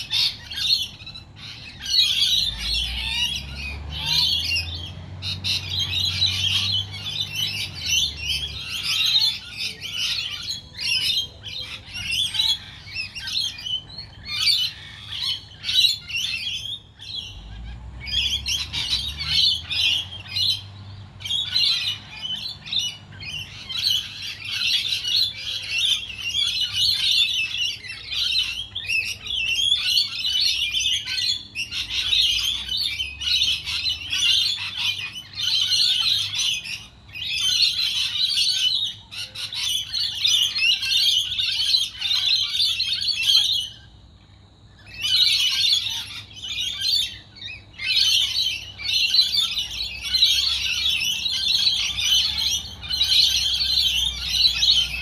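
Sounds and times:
flock of parrots chattering: 0.0 - 55.0.

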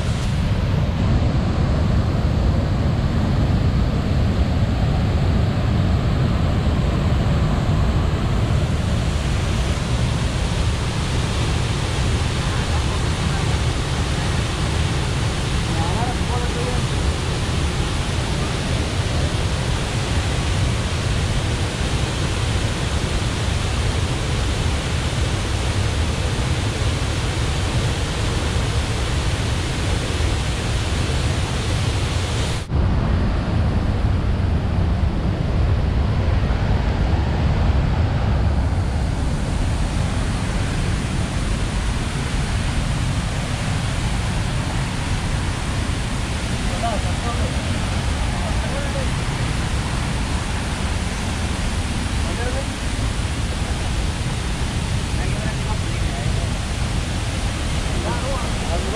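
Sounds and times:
waterfall rushing over rocks: 0.0 - 32.8, 36.0 - 58.9.

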